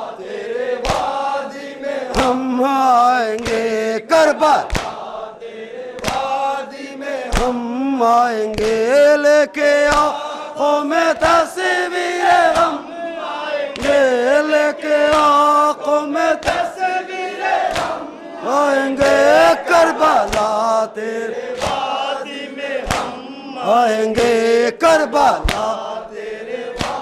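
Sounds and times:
men chanting a lament: 0.0s - 27.0s.

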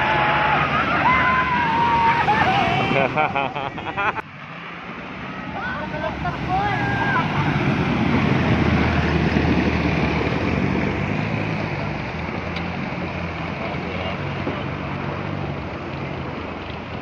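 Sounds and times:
water churning: 0.0s - 4.0s
jeep engine running: 0.0s - 17.0s.

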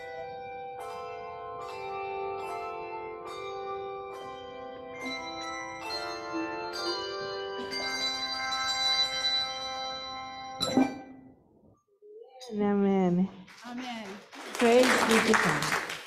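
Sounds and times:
handbells ringing slow melody: 0.0s - 10.7s.

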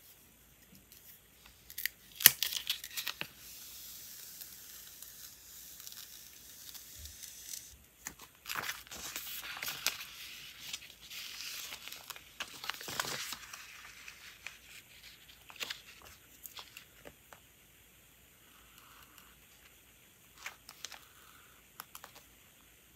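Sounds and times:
tape peeling hiss: 0.0s - 22.7s
tape tearing crackle: 1.0s - 17.1s.

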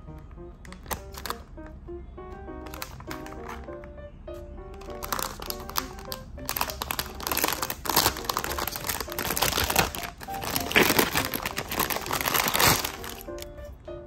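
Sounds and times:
plastic bag crinkling: 0.7s - 1.5s, 2.6s - 3.7s, 4.8s - 13.5s.

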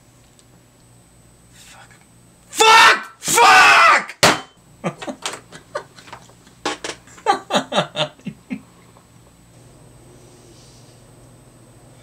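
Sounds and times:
man laughing: 4.8s - 6.0s, 7.1s - 8.7s.

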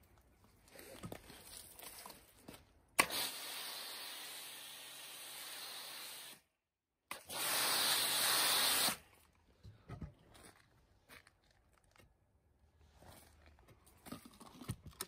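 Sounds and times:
pressure washer spraying foam: 3.0s - 6.4s, 7.1s - 9.0s.

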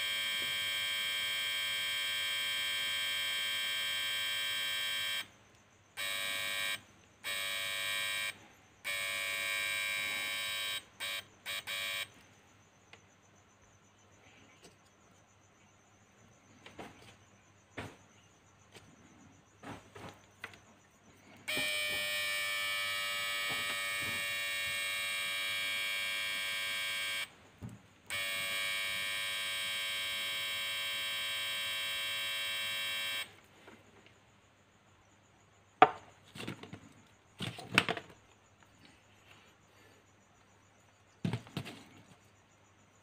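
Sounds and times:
transformer buzzing: 0.0s - 5.3s, 6.0s - 12.2s, 21.2s - 27.3s, 28.1s - 33.4s.

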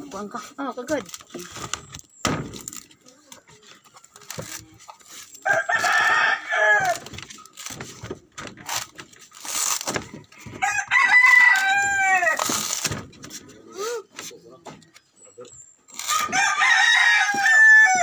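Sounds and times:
rooster crowing: 5.4s - 7.1s, 10.4s - 12.4s, 16.1s - 18.0s.

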